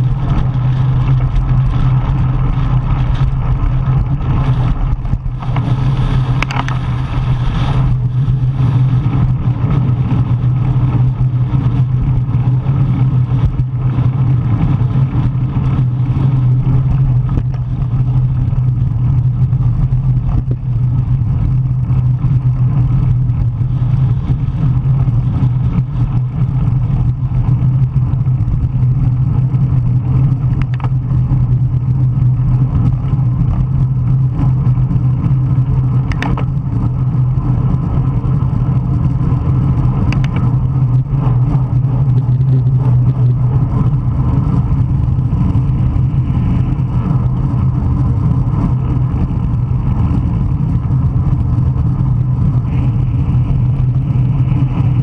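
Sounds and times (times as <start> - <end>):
wind noise on microphone: 0.0 - 55.0
faint clicks: 40.1 - 40.5.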